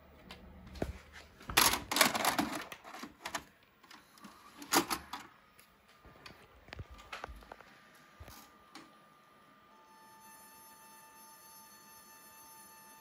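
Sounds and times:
mechanical clicks and clunks: 1.5s - 7.6s.

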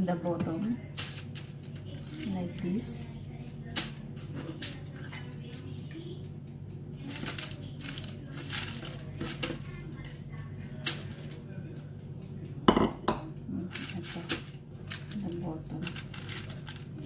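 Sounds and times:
steady low hum: 0.0s - 17.0s
foil and paper crinkling: 0.9s - 2.6s, 3.7s - 5.7s, 7.0s - 10.2s, 10.8s - 11.4s, 13.7s - 17.0s.

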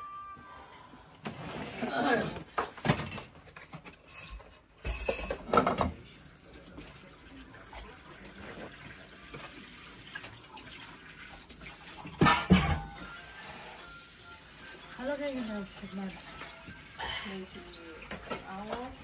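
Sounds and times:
tap water running into sink: 5.5s - 19.0s.

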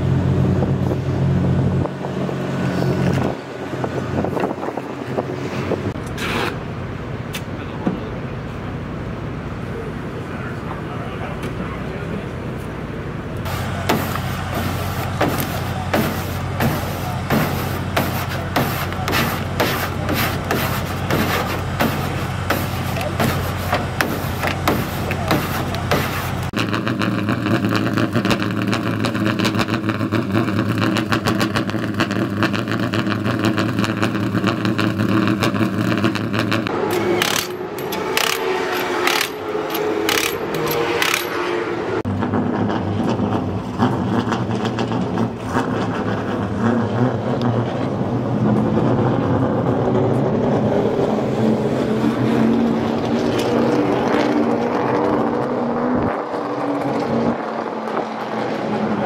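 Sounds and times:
race car engines running: 0.0s - 59.0s
impact wrench rattling bursts: 36.8s - 41.5s.

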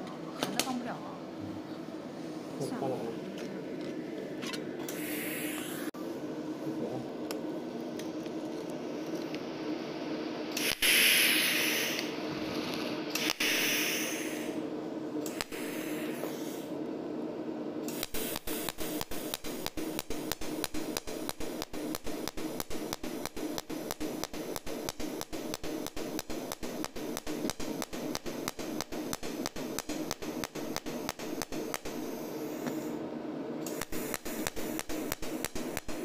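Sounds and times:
machine hum: 0.0s - 36.0s
welding torch hissing: 4.9s - 6.0s, 8.8s - 16.8s, 17.6s - 36.0s
welding machine fast ticking: 10.6s - 12.0s, 13.1s - 14.3s, 15.3s - 15.8s, 17.9s - 32.1s, 33.6s - 36.0s.

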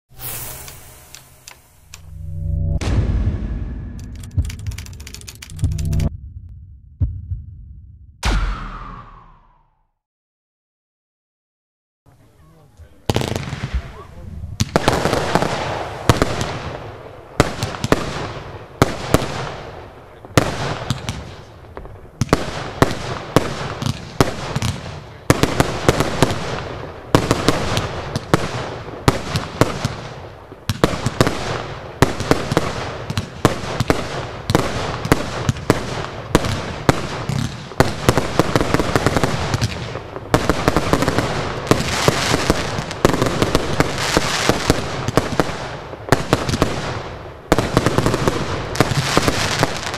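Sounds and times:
fireworks bangs: 13.1s - 49.9s.

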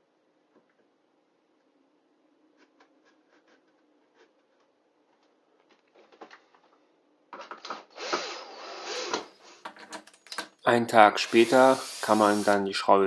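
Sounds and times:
cordless drill driving screw: 8.0s - 9.3s, 11.2s - 12.6s.

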